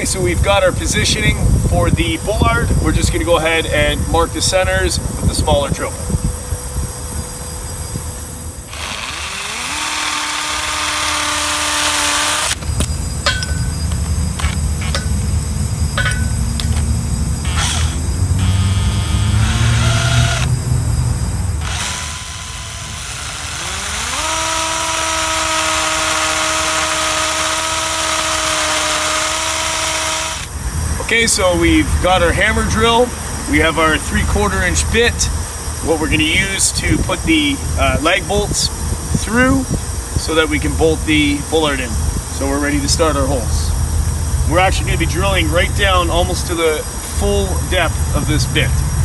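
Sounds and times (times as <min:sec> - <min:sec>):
drill motor whine: 0:07.0 - 0:13.1, 0:16.5 - 0:30.5
hammer drill drilling into metal: 0:08.7 - 0:12.6, 0:17.4 - 0:20.5, 0:21.6 - 0:30.5.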